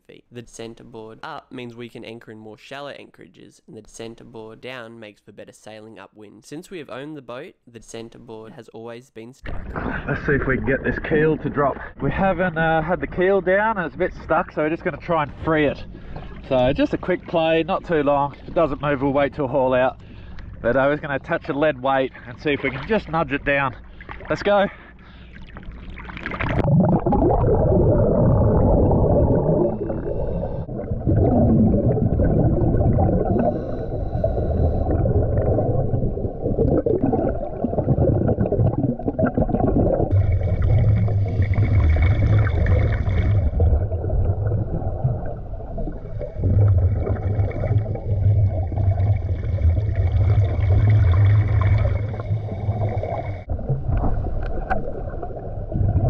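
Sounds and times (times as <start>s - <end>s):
steady hum: 12.2s - 54.7s
low churning of water: 20.0s - 56.0s
rush of bubbles underwater: 25.7s - 56.0s.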